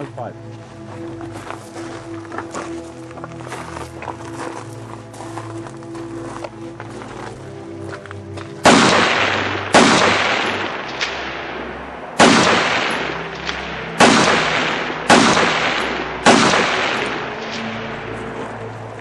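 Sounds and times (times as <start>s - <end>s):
rifle shots with echo: 8.6s - 17.7s.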